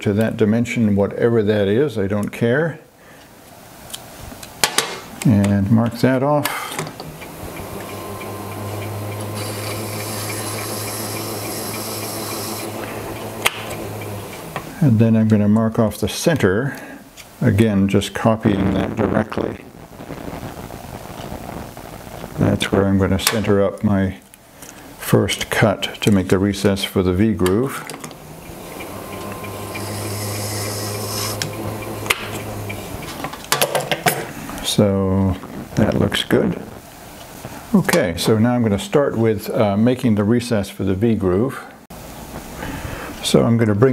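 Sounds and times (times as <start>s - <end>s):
lathe humming: 7.0s - 14.8s, 28.1s - 33.4s
tool scratching brass: 9.4s - 12.8s, 29.3s - 32.4s.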